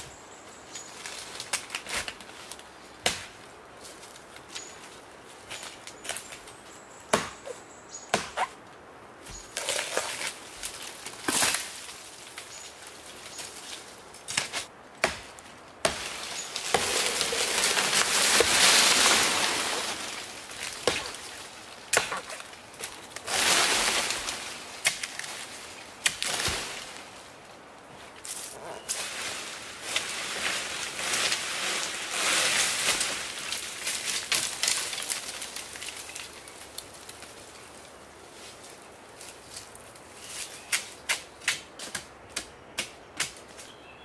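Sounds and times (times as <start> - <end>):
machete hacking trunk: 7.1 - 7.4, 8.1 - 8.5, 20.8 - 21.2, 21.9 - 22.4
rustling and scraping: 15.4 - 27.1, 27.9 - 36.2.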